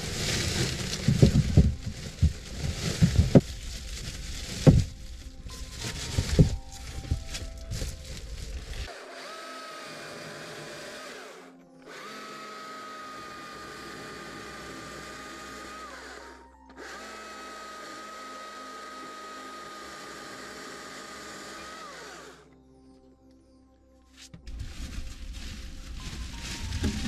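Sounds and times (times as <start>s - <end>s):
electric chainsaw whining: 8.6s - 22.5s.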